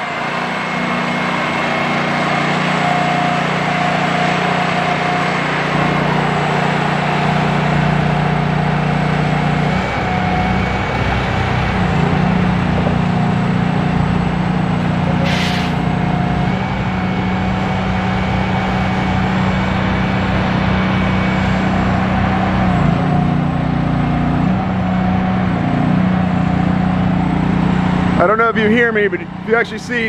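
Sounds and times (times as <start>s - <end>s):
heavy diesel truck engine droning: 0.0s - 30.0s
brief hiss: 15.2s - 15.8s.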